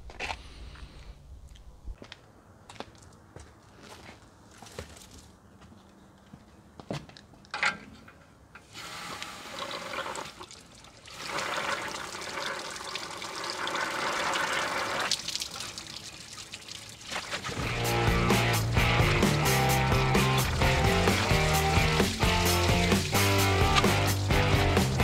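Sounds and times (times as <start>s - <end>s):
water rushing from hose: 8.7s - 25.0s.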